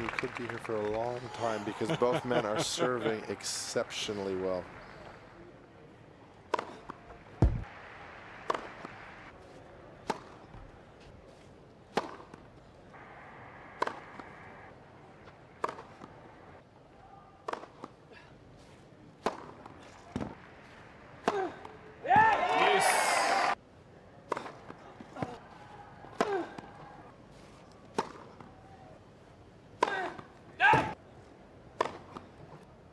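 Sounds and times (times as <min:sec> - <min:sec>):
racket hitting tennis ball: 0:06.5 - 0:07.6, 0:08.4 - 0:09.0, 0:10.0 - 0:10.4, 0:11.9 - 0:12.4, 0:13.8 - 0:14.2, 0:15.6 - 0:16.1, 0:17.4 - 0:18.0, 0:19.2 - 0:20.4, 0:24.3 - 0:25.4, 0:27.9 - 0:28.4, 0:31.8 - 0:32.3.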